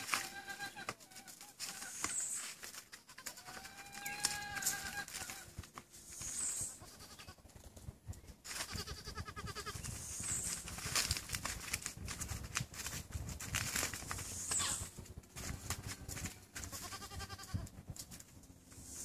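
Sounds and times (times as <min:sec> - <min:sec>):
goats bleating: 0:00.0 - 0:01.9, 0:02.9 - 0:05.7, 0:06.7 - 0:07.4, 0:08.5 - 0:09.8, 0:14.5 - 0:17.7.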